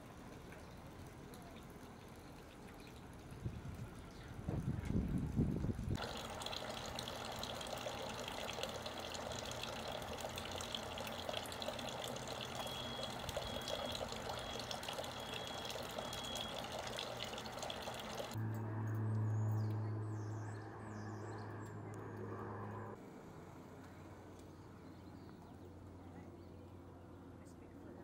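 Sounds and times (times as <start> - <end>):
water running and splashing: 0.0 - 18.4.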